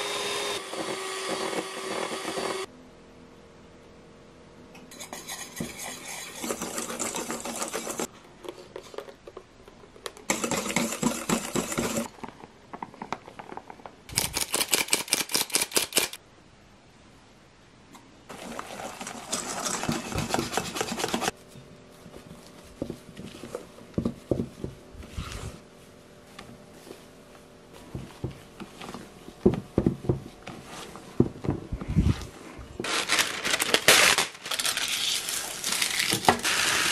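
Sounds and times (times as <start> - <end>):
whisk beating batter in metal bowl: 5.0 - 8.1, 10.3 - 12.1, 18.4 - 21.3.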